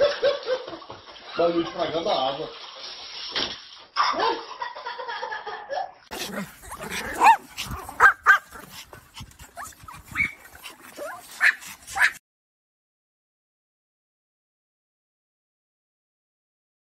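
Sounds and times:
dogs yapping: 6.1s - 12.2s.

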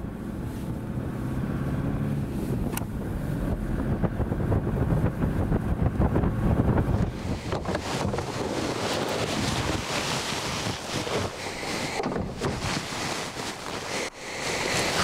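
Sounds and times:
engine and road rumble: 0.0s - 15.0s
knocks and rattles: 11.9s - 12.9s.

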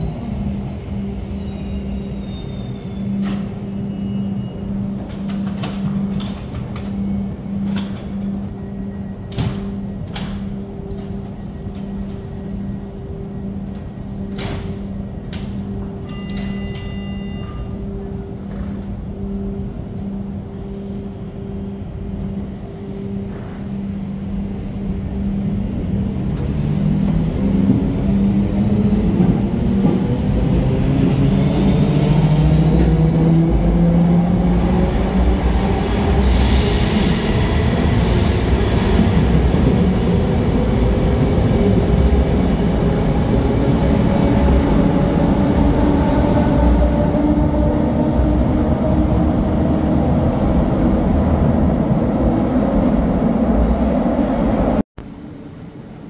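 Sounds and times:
electric train humming: 0.0s - 56.0s
high wheel squeal: 1.4s - 4.7s.

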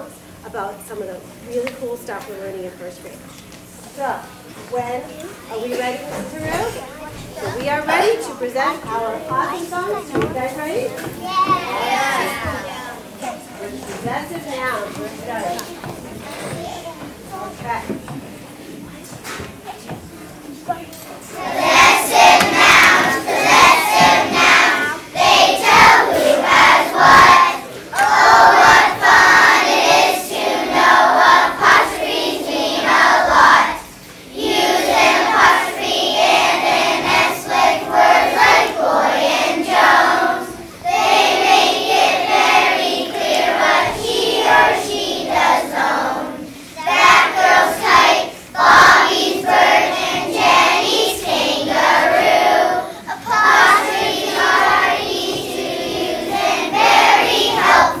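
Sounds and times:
children's choir singing: 21.2s - 58.0s.

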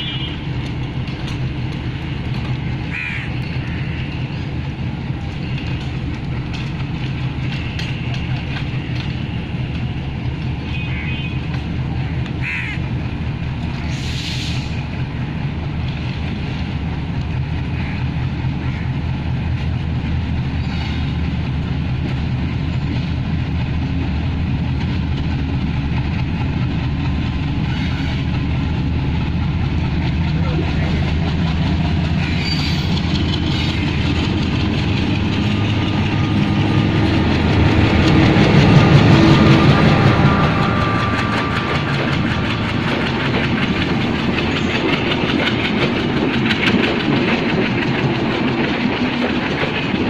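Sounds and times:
diesel locomotive engines droning: 0.0s - 50.0s
crows cawing: 2.9s - 4.2s, 10.9s - 11.2s, 12.4s - 12.8s, 17.8s - 19.0s.

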